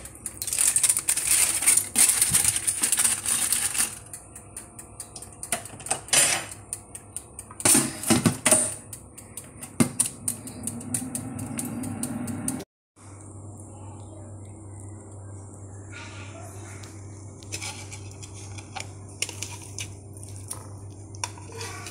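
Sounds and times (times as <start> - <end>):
wire rack and foil clattering: 0.0 - 4.2, 17.5 - 21.9
oven fan humming: 0.0 - 21.9.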